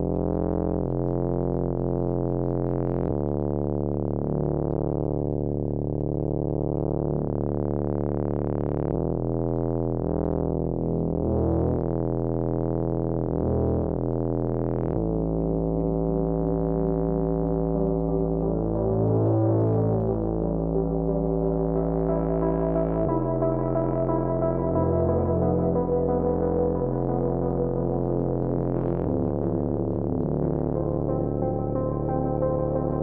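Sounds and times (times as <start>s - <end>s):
synthesizer keyboard chords: 13.3s - 33.0s.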